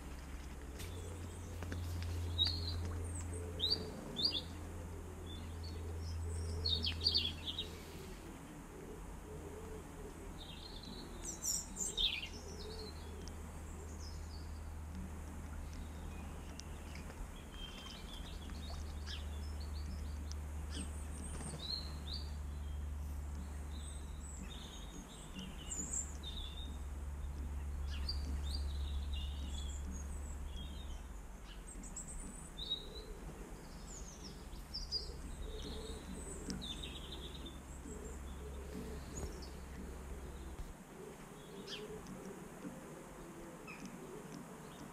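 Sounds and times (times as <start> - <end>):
small birds chirping: 0.0 - 44.9
steady low rumble: 0.0 - 44.9.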